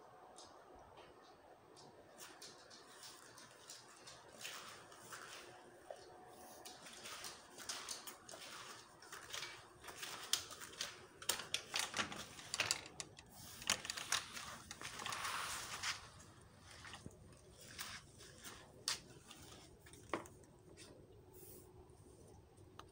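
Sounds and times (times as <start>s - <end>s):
dog claws clicking on hard floor: 6.7s - 15.2s.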